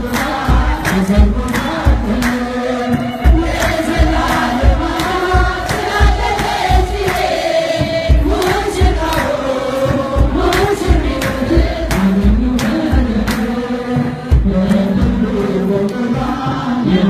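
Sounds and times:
drum steady beat: 0:00.0 - 0:17.0
many voices singing together: 0:00.0 - 0:17.0.

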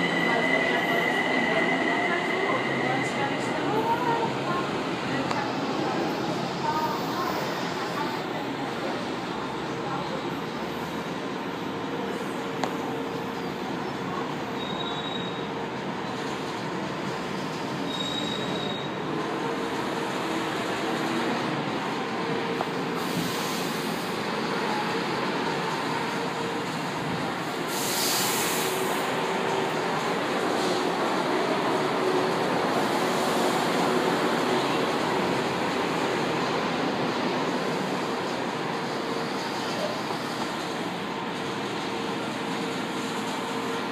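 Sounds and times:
train running noise: 0:00.0 - 0:43.9
high wheel squeals: 0:14.6 - 0:15.5, 0:17.8 - 0:19.0.

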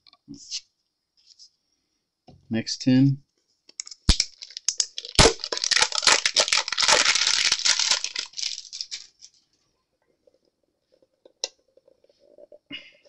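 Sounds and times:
foil wrapper crinkling and tearing: 0:03.8 - 0:09.4.

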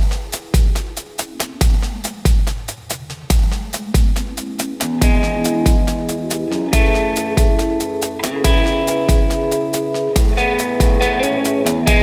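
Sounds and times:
hi-hat ticks: 0:00.0 - 0:12.0.

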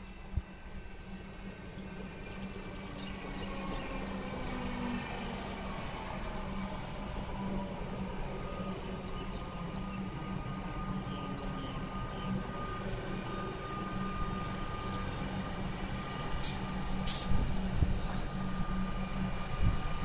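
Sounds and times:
electric train high whine: 0:00.0 - 0:20.0
electric train low hum: 0:00.0 - 0:20.0
short hisses: 0:16.4 - 0:17.4.

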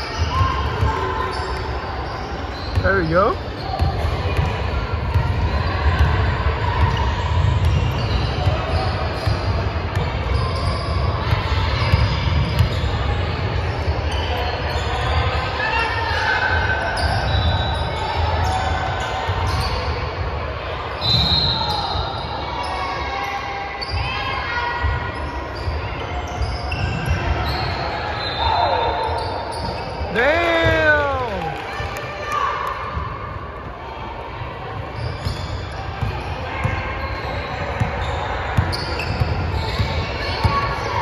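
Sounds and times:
shoe squeaks: 0:01.2 - 0:03.9, 0:07.6 - 0:09.5, 0:17.0 - 0:19.8, 0:25.2 - 0:30.1, 0:34.9 - 0:41.0
basketball bouncing on court: 0:02.7 - 0:13.8, 0:30.4 - 0:31.5, 0:34.8 - 0:41.0
echoing voices: 0:30.1 - 0:31.8.

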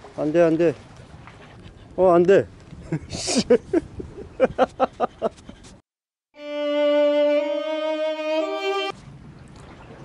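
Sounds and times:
mournful violin notes: 0:06.4 - 0:08.9.

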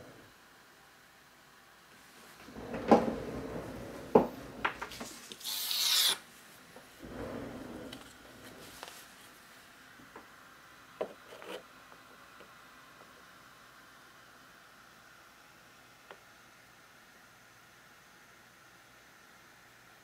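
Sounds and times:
soft rubbing: 0:06.3 - 0:09.7
hissing scrape: 0:07.0 - 0:09.3.

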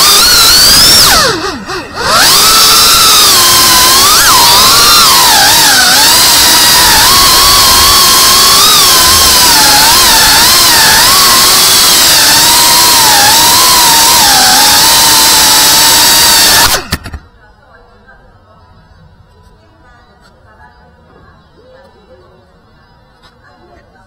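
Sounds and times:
drone motors whining: 0:00.0 - 0:17.3.

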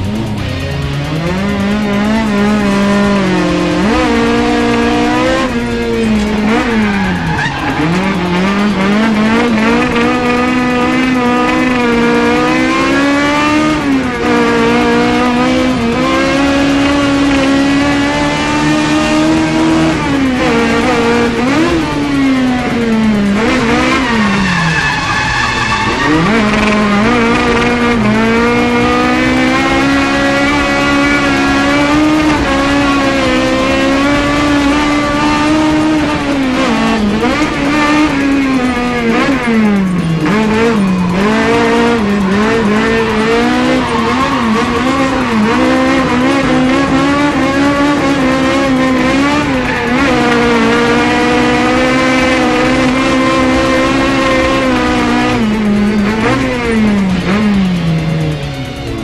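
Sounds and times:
car engine revving hard: 0:00.0 - 0:59.0
tyres squealing: 0:06.0 - 0:13.0, 0:23.4 - 0:55.1.

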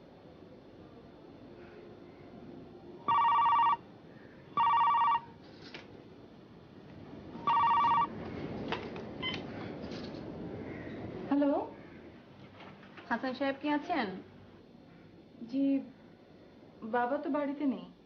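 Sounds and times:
cordless telephone ringing: 0:03.1 - 0:03.8, 0:04.6 - 0:05.3, 0:07.4 - 0:08.1.

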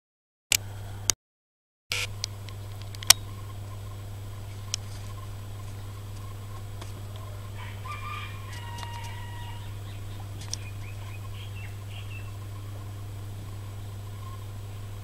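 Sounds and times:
low hum: 0:00.5 - 0:01.2, 0:01.9 - 0:15.0
chickens clucking: 0:04.6 - 0:13.6
chicken crowing call: 0:07.0 - 0:10.2.

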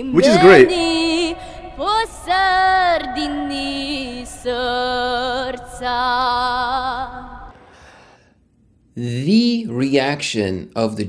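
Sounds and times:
girl singing a cappella: 0:00.0 - 0:07.5
breaths between notes: 0:01.4 - 0:01.8, 0:07.6 - 0:08.4.

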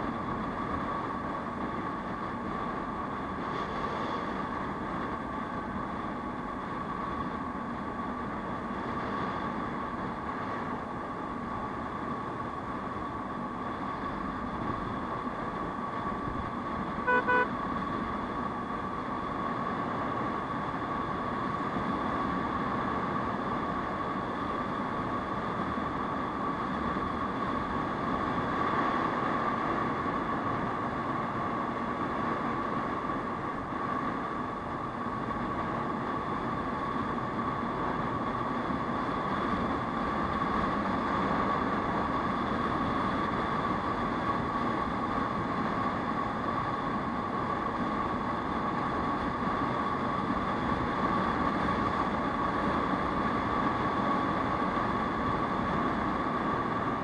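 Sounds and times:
horn toots: 0:17.0 - 0:17.5.

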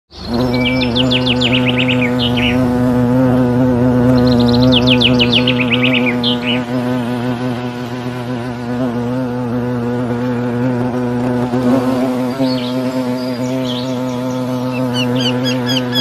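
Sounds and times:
bird chirps: 0:00.1 - 0:02.7, 0:04.0 - 0:06.8, 0:12.4 - 0:16.0
low buzzing: 0:00.1 - 0:16.0.

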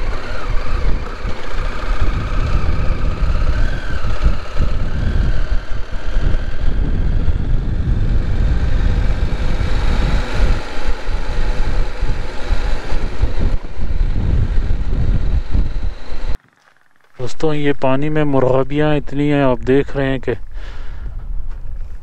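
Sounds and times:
wind rumble on microphone: 0:00.0 - 0:16.4, 0:20.4 - 0:22.0
motorcycle engine running: 0:00.0 - 0:17.5.

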